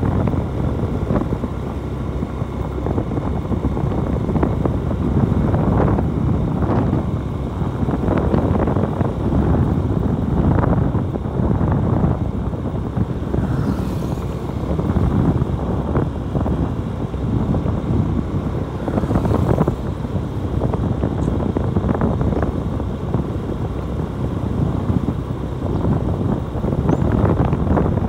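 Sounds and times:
motorcycle ride rumble: 0.0s - 28.0s
wind buffeting microphone: 0.0s - 28.0s.

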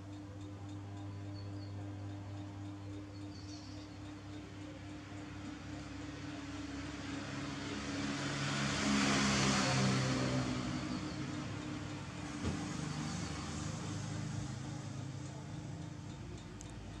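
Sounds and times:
vehicle passing by: 5.3s - 16.1s.

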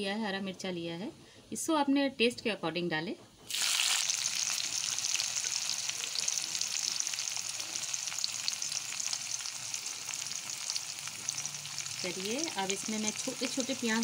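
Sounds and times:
garlic sizzling in hot oil: 3.5s - 14.0s.

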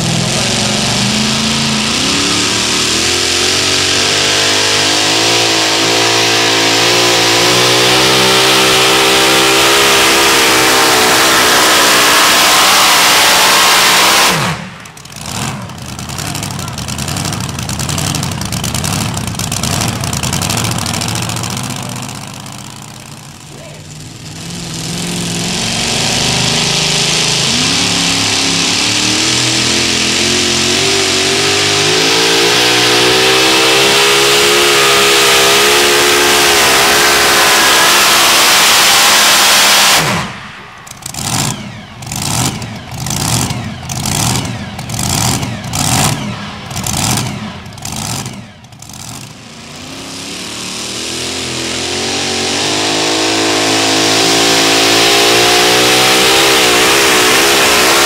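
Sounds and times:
truck engine at full throttle: 0.0s - 58.0s
engine revving in short blips: 24.4s - 58.0s.

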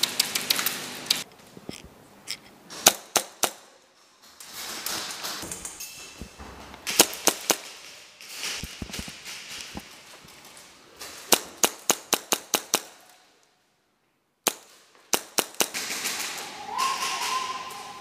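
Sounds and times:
airsoft guns firing sharp cracks: 2.7s - 3.8s, 6.8s - 8.6s, 11.1s - 13.2s, 14.4s - 17.9s.

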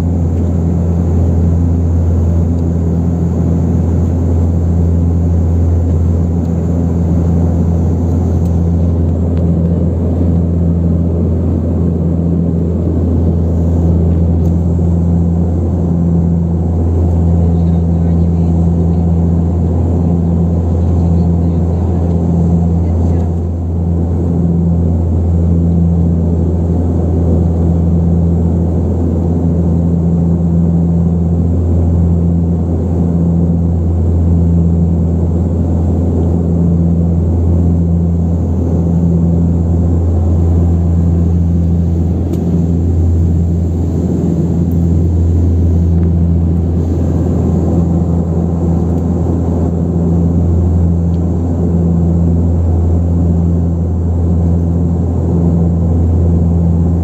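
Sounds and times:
turboprop cabin drone: 0.0s - 57.0s.

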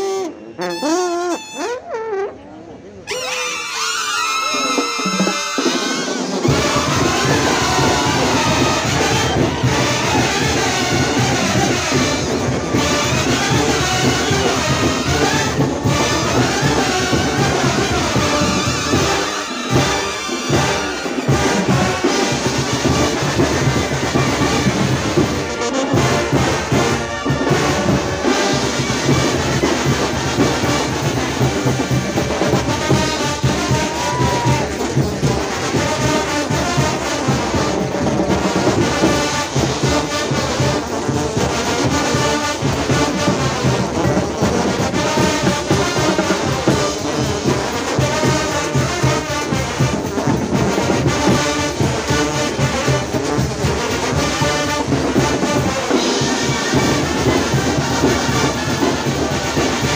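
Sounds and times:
brass bands playing: 0.0s - 59.9s
cymbals: 3.1s - 59.9s
bass drum: 6.4s - 19.0s.

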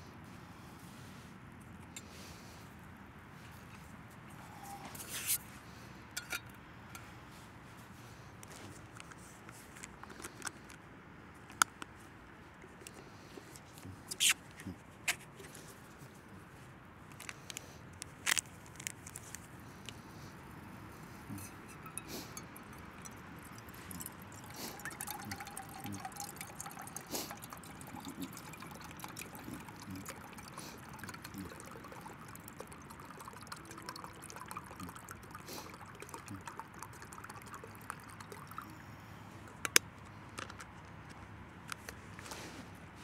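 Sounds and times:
water trickling into metal pot: 21.3s - 38.8s.

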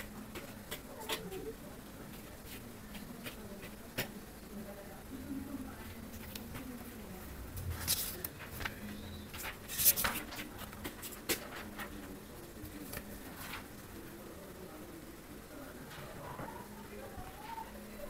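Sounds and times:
fingers tapping on paper: 2.5s - 4.2s
book page turning: 7.8s - 11.9s.

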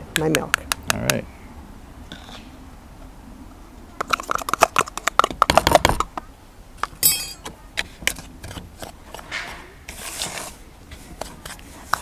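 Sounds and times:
high ringing note: 7.0s - 7.4s.

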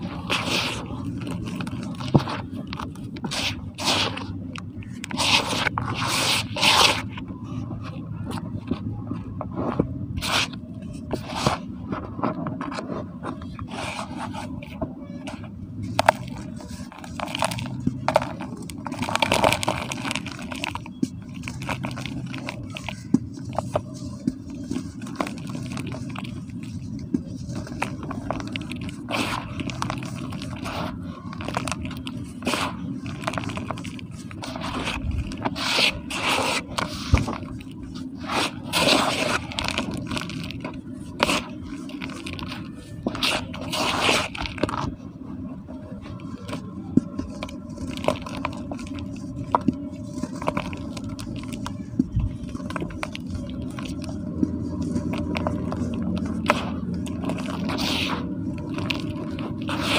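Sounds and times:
hands crumbling gritty cement: 15.9s - 44.9s.

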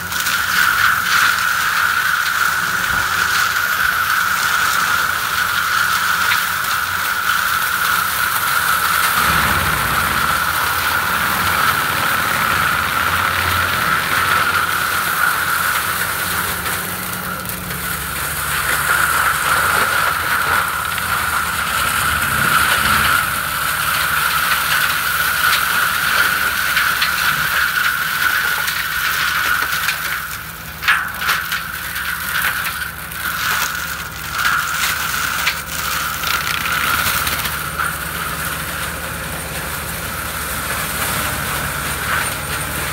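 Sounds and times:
diesel tractor engine under load: 0.0s - 42.9s
mulcher high whine: 0.0s - 42.9s
woody stems cracking and rattling: 0.0s - 42.9s.

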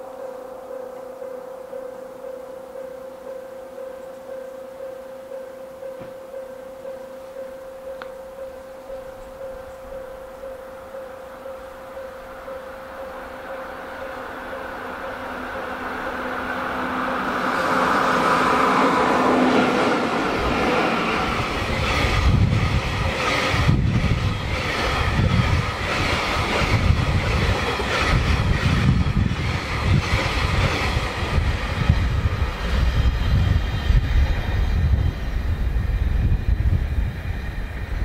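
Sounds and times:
freight train rumbling past: 7.5s - 38.0s
wheels clacking over rail joints: 12.3s - 33.0s.

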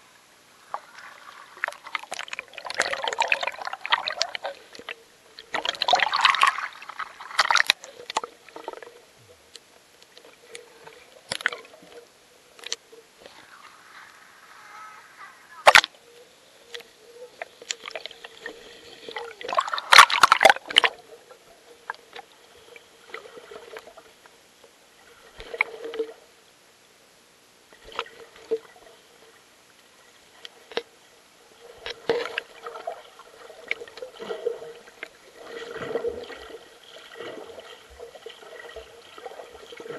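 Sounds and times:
creek water splashing: 5.5s - 8.7s, 17.7s - 21.1s.

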